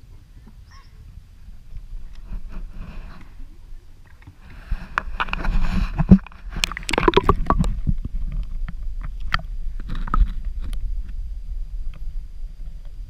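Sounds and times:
water sloshing and splashing: 4.0s - 10.4s
sharp clicks and crackles: 4.0s - 11.2s.

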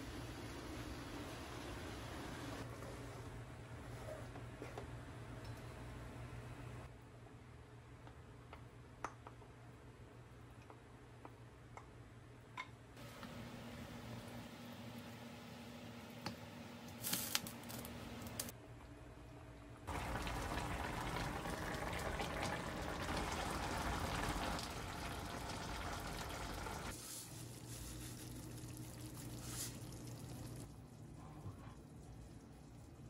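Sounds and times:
stew bubbling in a frying pan: 19.9s - 27.0s, 27.8s - 31.0s.

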